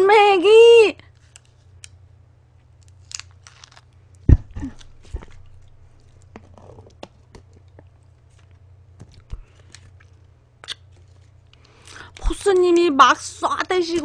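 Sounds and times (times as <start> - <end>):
steady low hum: 0.0 - 14.0
plastic food packet rustling: 2.8 - 10.3.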